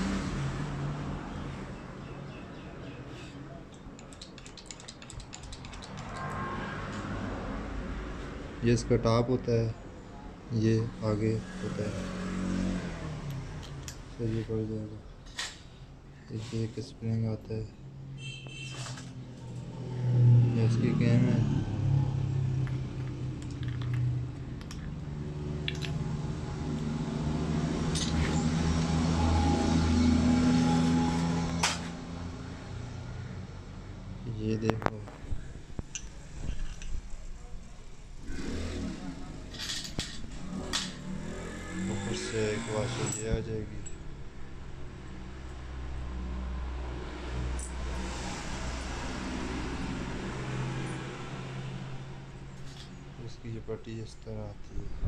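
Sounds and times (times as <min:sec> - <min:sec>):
faint metal parts clicking: 0:03.7 - 0:06.4, 0:23.0 - 0:25.0, 0:35.8 - 0:37.1.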